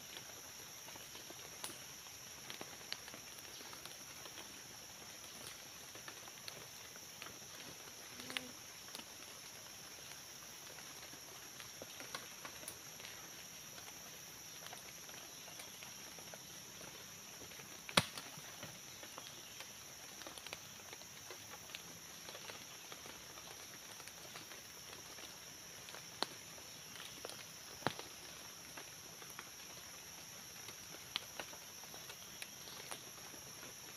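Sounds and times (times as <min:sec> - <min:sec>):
twig snapping: 0:17.9 - 0:18.3.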